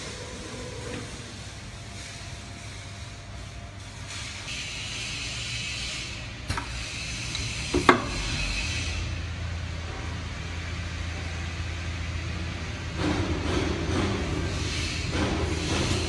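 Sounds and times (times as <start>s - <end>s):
steady machine hum: 0.0s - 16.0s
burst of hiss: 1.9s - 9.2s.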